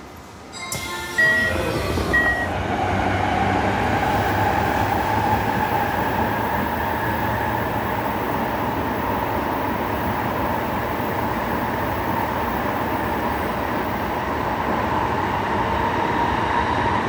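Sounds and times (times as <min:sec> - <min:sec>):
train running rumble and whine: 0:00.0 - 0:17.0
short high beep: 0:00.5 - 0:02.6.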